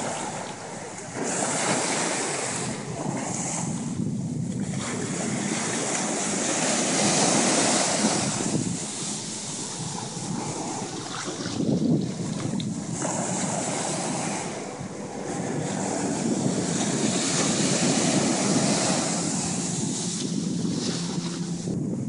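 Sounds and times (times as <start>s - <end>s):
small ocean waves breaking: 0.0s - 21.8s
wind buffeting microphone: 0.0s - 22.0s.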